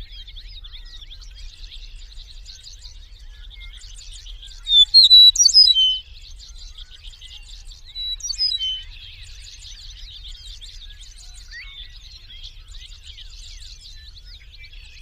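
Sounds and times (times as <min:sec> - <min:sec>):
meadowlark whistled song: 0:00.0 - 0:15.0
faint high chirping: 0:04.7 - 0:06.0, 0:08.0 - 0:08.8.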